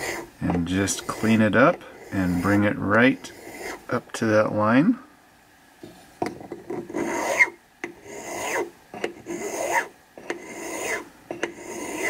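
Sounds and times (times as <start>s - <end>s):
file rasping on sheet metal: 0.0s - 3.9s, 6.8s - 12.0s.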